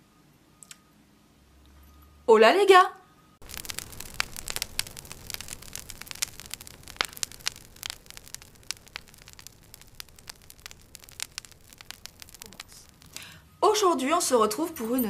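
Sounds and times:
crackling static clicks: 0:03.4 - 0:13.9.

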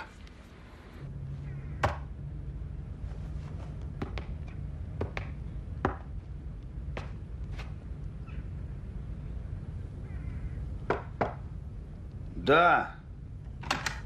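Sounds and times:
steady low hum: 0:00.0 - 0:14.0
man walking across room: 0:01.8 - 0:08.2.

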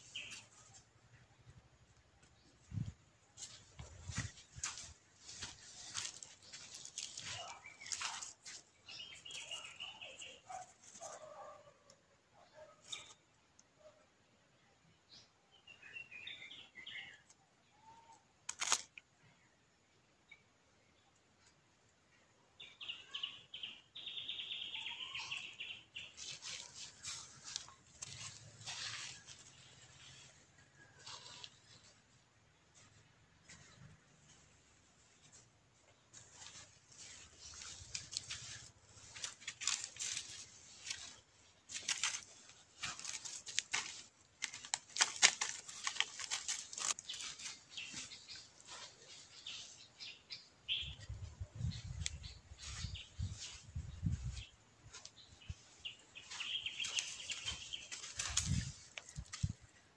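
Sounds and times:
rabbit digging in dry soil: 0:00.0 - 0:11.9, 0:18.5 - 0:18.9, 0:25.0 - 0:50.0, 0:51.5 - 0:59.9.

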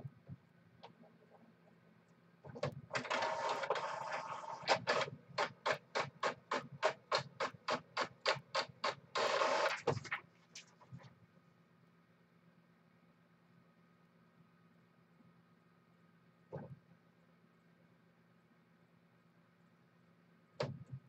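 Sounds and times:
printer paper feed whir: 0:02.5 - 0:10.2
printer strokes: 0:02.5 - 0:10.2.

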